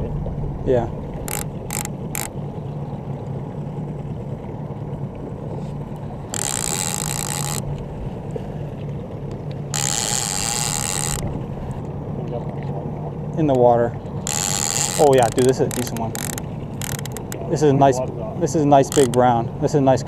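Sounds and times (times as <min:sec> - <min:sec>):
boat motor humming: 0:00.0 - 0:20.0
reel ticks: 0:01.1 - 0:02.4, 0:05.9 - 0:07.9, 0:08.8 - 0:12.0, 0:13.5 - 0:17.8, 0:18.4 - 0:20.0
fishing reel drag buzzing: 0:01.2 - 0:02.4, 0:06.3 - 0:08.1, 0:09.7 - 0:11.8, 0:14.2 - 0:17.4, 0:18.7 - 0:19.4.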